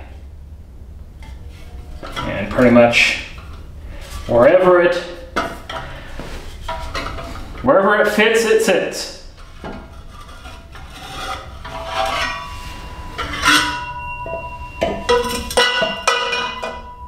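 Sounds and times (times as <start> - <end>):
metal pipes clinking and knocking: 1.2 - 4.4, 5.3 - 7.6, 9.4 - 17.0.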